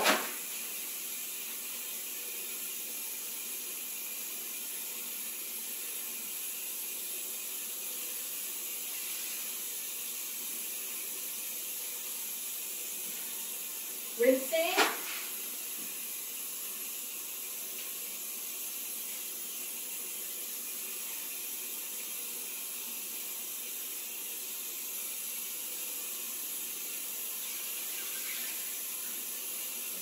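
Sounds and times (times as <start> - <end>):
faucet water running: 0.0 - 30.0.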